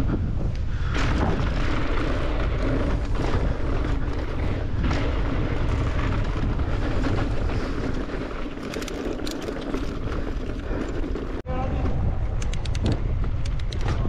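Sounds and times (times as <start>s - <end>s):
bike tyres rolling on dirt: 0.0s - 14.0s
wind on microphone: 0.0s - 14.0s
bike frame rattling: 0.8s - 11.4s.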